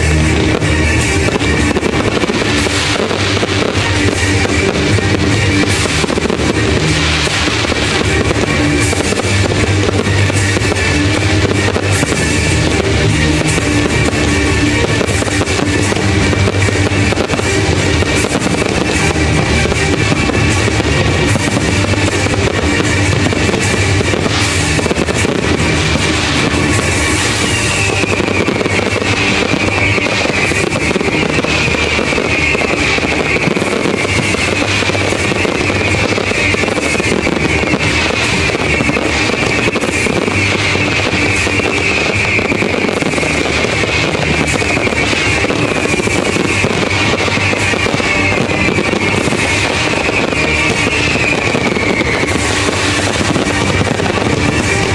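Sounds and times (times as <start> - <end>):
firework bangs and crackling: 0.0 - 54.9
rock music with guitar: 0.0 - 54.9.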